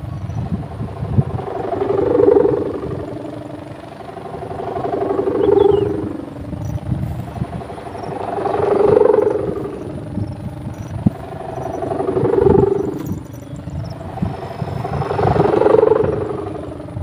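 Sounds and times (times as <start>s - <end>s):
kite hummer droning: 0.0s - 17.0s
low gusty rumble: 0.0s - 17.0s.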